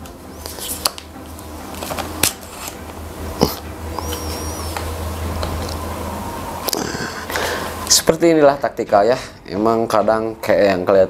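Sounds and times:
steady low hum: 0.0 - 11.0
high wavering chirp: 2.8 - 8.2.

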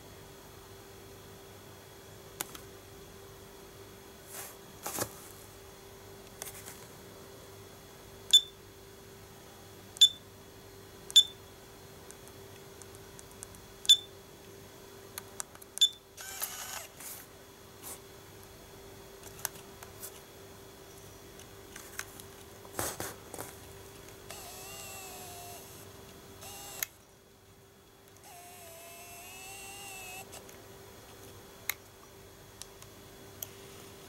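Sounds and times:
camera beeping: 15.8 - 16.9, 24.3 - 25.8, 26.4 - 26.9, 28.2 - 30.4
camera clicks: 16.2 - 16.9, 26.4 - 26.9
camera lens motor whirring: 16.2 - 17.0, 24.2 - 27.0, 28.2 - 30.5.

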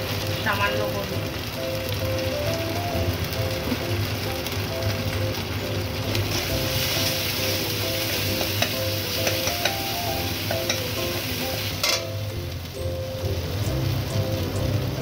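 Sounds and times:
paste sizzling in hot oil: 0.0 - 15.0
metal spatula clicking on pan: 8.4 - 9.8, 11.8 - 12.1.

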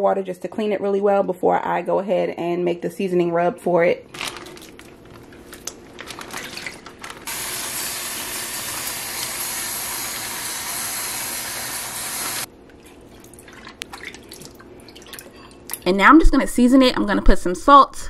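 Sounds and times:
plastic packaging crinkling: 4.1 - 7.3
faucet running into a sink: 7.3 - 12.5.

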